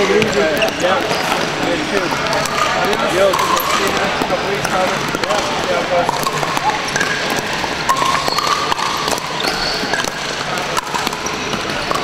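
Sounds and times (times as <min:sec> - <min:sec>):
paddles hitting plastic ball: 0:00.0 - 0:12.0
sneakers squeaking on hardwood: 0:00.0 - 0:12.0.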